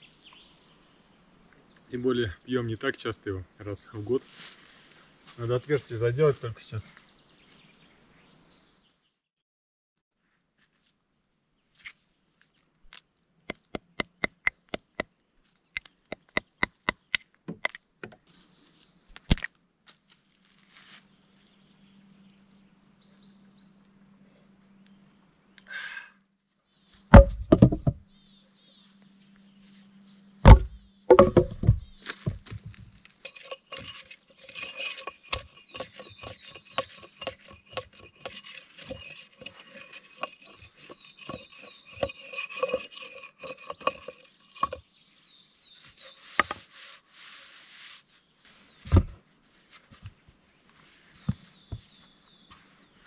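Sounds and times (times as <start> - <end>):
wood knocking: 27.1 - 28.0, 30.5 - 44.8
light taps and clinks: 30.5 - 44.8.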